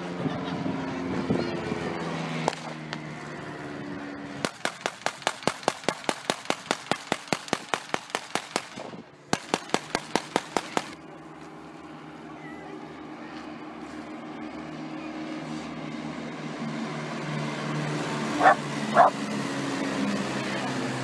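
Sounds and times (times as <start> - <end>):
voices: 0.0 - 4.2, 10.2 - 16.8, 18.4 - 19.2, 20.0 - 21.0
rapid gunfire: 4.4 - 11.0.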